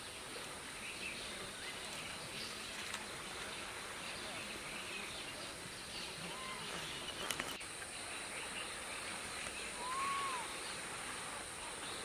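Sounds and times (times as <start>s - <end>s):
faint clicks: 1.8s - 3.5s, 7.1s - 7.9s
whistled bird calls: 4.1s - 10.8s.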